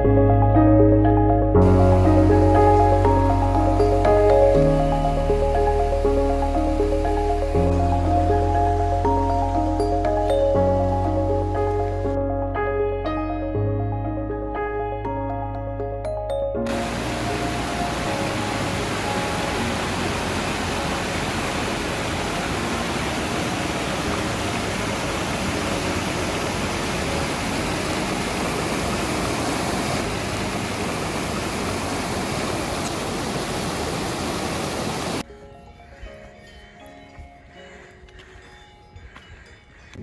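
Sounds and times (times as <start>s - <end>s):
mountain stream rushing over boulders: 16.7s - 35.2s.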